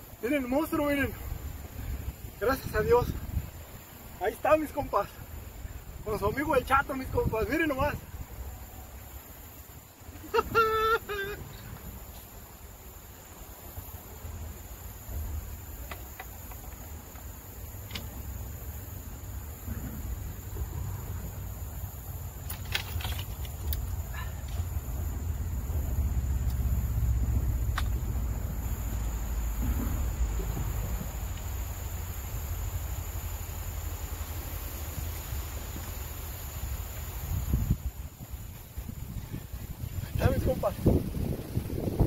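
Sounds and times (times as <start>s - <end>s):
insects chirring: 0.0s - 42.0s
wind rumbling on microphone: 0.0s - 42.0s
fishing gear rustling: 22.3s - 24.8s.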